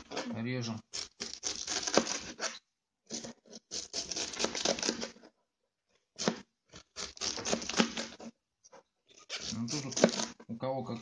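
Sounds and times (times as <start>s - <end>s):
knife shredding cabbage: 0.0s - 5.2s, 6.2s - 8.3s, 9.2s - 10.4s.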